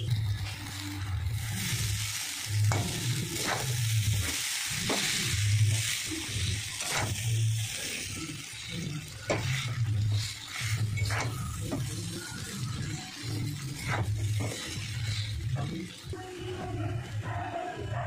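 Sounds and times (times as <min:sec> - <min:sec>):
noodles sizzling in a pan: 0:00.0 - 0:17.9
metal spatula scraping a pan: 0:02.6 - 0:07.3, 0:07.9 - 0:16.0.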